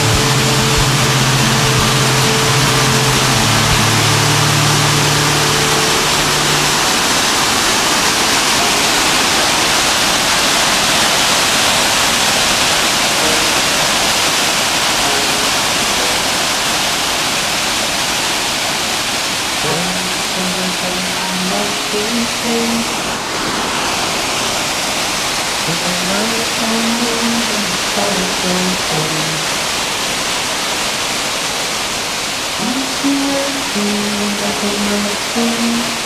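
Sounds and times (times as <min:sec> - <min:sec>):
low steady hum: 0:00.0 - 0:09.6, 0:19.6 - 0:23.3
waterfall rushing: 0:00.0 - 0:36.0
faint pitched tones: 0:13.2 - 0:14.2.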